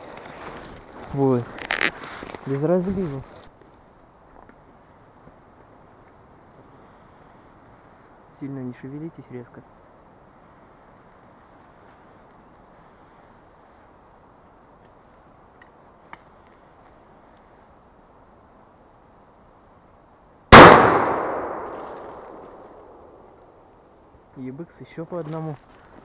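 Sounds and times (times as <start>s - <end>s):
high thin bird call whistles: 6.5s - 8.2s, 10.2s - 14.0s, 16.0s - 17.8s
loud gunshot: 20.5s - 23.0s.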